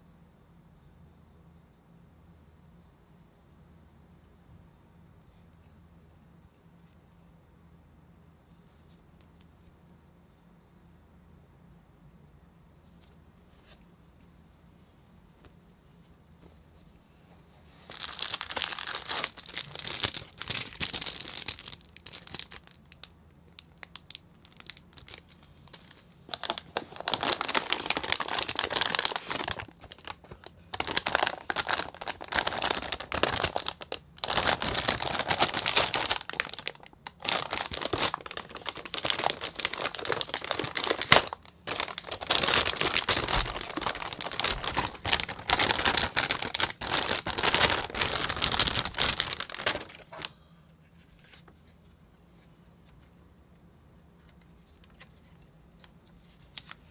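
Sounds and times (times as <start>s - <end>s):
plastic bag crinkling: 17.9s - 50.3s.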